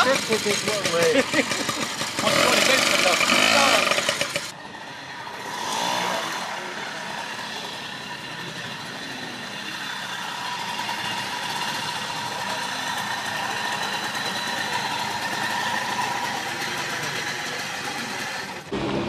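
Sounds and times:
moped engine idling: 0.0s - 5.3s, 6.5s - 19.0s.

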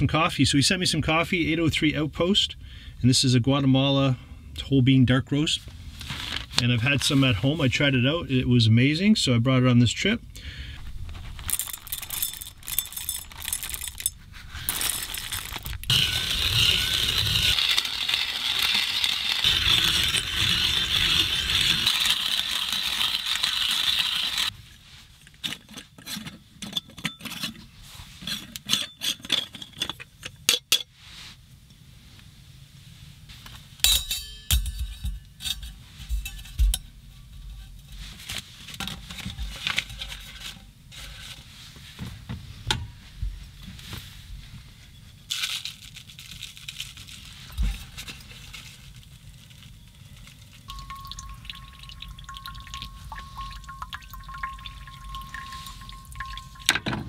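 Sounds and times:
coffee beans rattling: 11.0s - 24.5s, 45.3s - 56.8s
grinder grinding crunch: 11.0s - 24.5s
metal clinking on glass: 11.5s - 15.6s, 33.8s - 36.8s, 50.7s - 57.0s.

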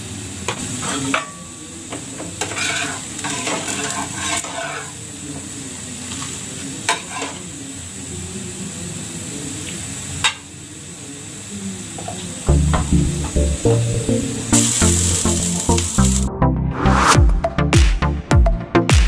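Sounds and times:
pan sizzling: 0.0s - 16.4s
metal spatula scraping: 2.4s - 5.0s, 6.9s - 7.4s.

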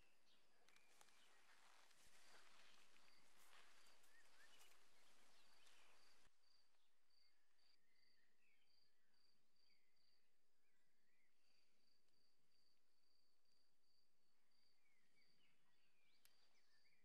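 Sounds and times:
background hiss: 0.0s - 6.3s
bird chirps: 0.0s - 6.3s.

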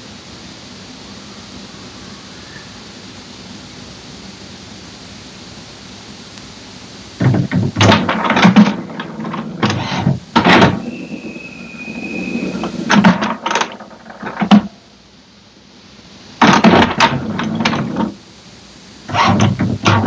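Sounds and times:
printer mechanism whirring and clattering: 7.2s - 14.8s, 16.4s - 18.2s, 19.1s - 20.0s
high whine: 7.2s - 14.9s.

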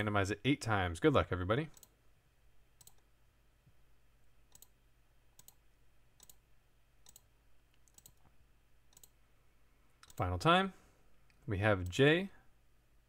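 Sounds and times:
low steady hum: 0.0s - 13.0s
faint computer mouse clicks: 4.5s - 4.8s, 5.4s - 5.6s, 6.2s - 6.4s, 7.0s - 9.2s.

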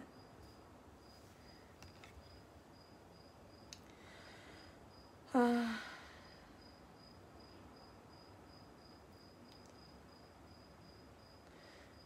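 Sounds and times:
cricket chirping: 0.0s - 12.0s
woman humming: 5.3s - 6.0s.

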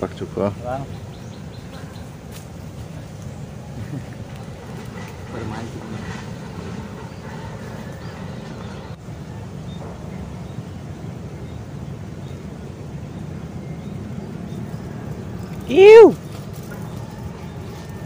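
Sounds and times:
wind buffeting microphone: 0.0s - 18.0s
faint voices: 15.1s - 18.0s.

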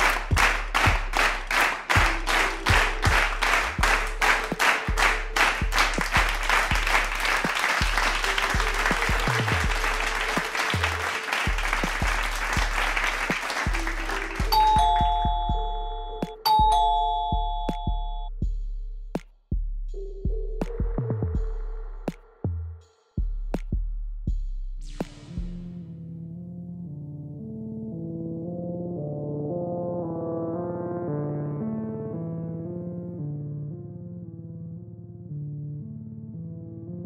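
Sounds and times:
fast beat background music: 0.0s - 25.8s
two-tone doorbell chime: 14.5s - 18.3s.

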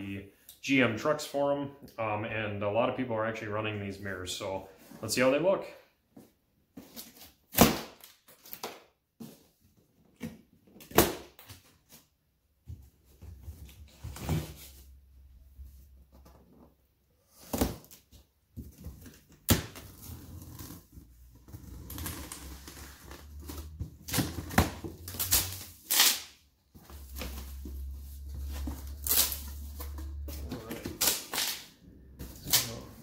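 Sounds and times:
knife slitting packing tape: 25.1s - 26.4s, 29.0s - 29.5s.

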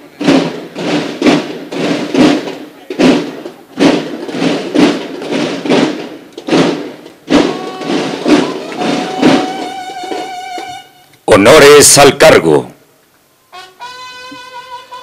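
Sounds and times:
marching drum beats: 0.0s - 12.4s
bugle notes: 6.6s - 11.3s, 13.4s - 15.0s.

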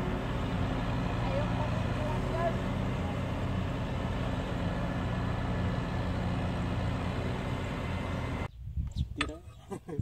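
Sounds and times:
tractor engine running: 0.0s - 8.5s.

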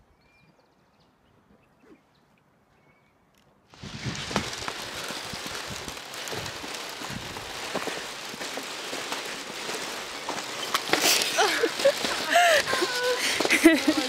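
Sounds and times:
microphone rustling hiss: 3.7s - 14.0s
footsteps on wooden planks: 3.8s - 14.0s.

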